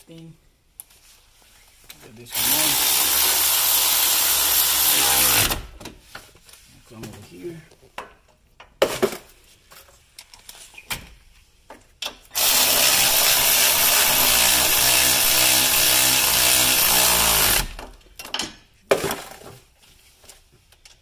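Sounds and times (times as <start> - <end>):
cordless drill running: 2.3 - 5.7, 12.3 - 17.9.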